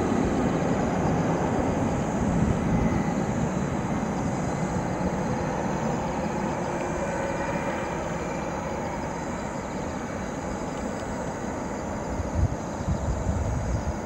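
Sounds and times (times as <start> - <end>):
wind buffeting microphone: 0.0 - 7.2, 12.1 - 14.0
distant jet engines rumbling: 0.0 - 14.0.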